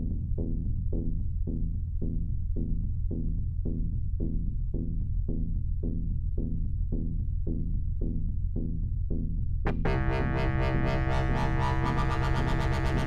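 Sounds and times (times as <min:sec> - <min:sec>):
low synthesizer drone: 0:09.7 - 0:13.0
repeating synth note: 0:09.7 - 0:13.0.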